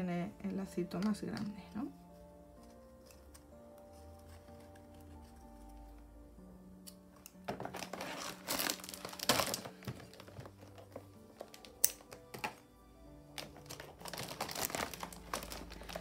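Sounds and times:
soft background music: 0.0 - 16.0
bag crinkling and rustling: 7.5 - 12.6, 13.3 - 16.0.

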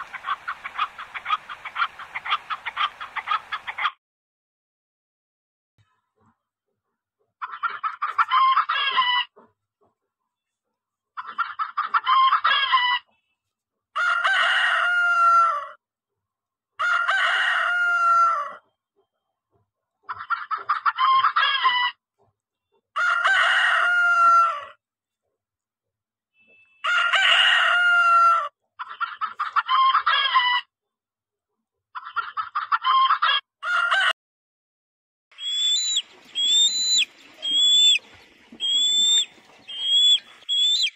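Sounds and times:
hens cackling: 0.0 - 4.0, 7.3 - 9.6, 20.0 - 22.3, 26.8 - 30.7, 31.9 - 34.2, 35.4 - 40.9
roosters crowing: 14.0 - 15.8, 16.8 - 18.6, 23.0 - 24.8, 26.8 - 28.5, 32.9 - 34.2, 35.4 - 38.0, 38.6 - 40.9.

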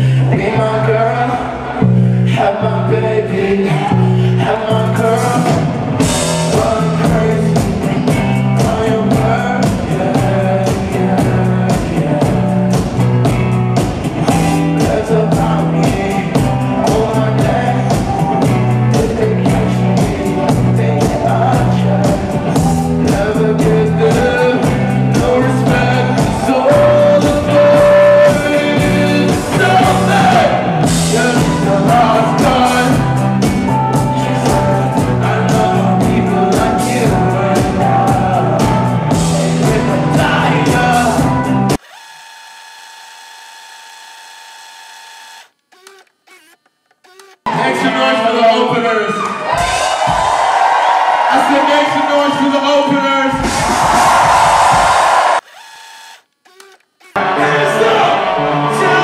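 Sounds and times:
male lead vocal: 0.0 - 13.1, 14.2 - 41.8, 57.2 - 59.0
bass guitar: 0.0 - 41.8, 57.2 - 59.0
drum beat: 5.4 - 41.8, 49.5 - 51.2, 53.3 - 55.4.

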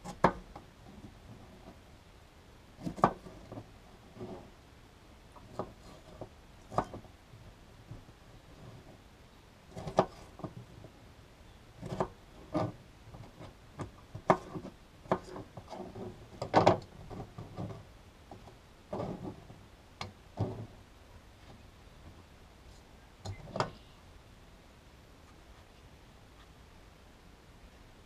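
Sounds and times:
knife scraping board: 2.8 - 4.5, 5.4 - 7.0, 9.7 - 10.6, 11.8 - 13.6, 14.2 - 17.8, 18.9 - 19.5.

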